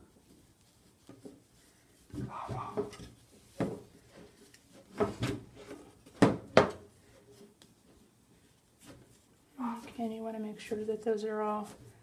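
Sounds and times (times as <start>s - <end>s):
sharp knocks on wooden frame: 6.2s - 6.8s.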